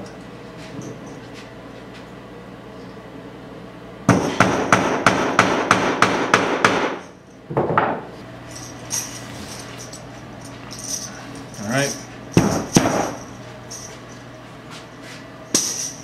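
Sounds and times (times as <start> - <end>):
hammer striking bottle caps: 15.5 - 16.0.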